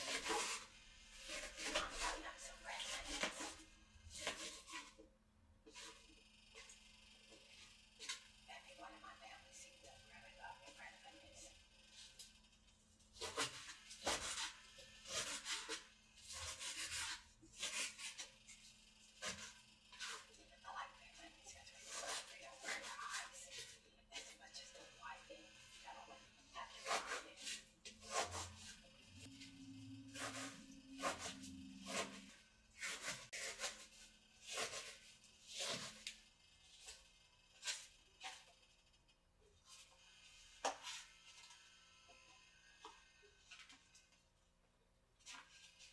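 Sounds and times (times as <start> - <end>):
knife chopping onion: 0.0 - 2.2, 2.8 - 5.0, 13.2 - 18.3, 19.2 - 20.2, 21.8 - 23.8, 26.8 - 29.4, 30.1 - 36.1.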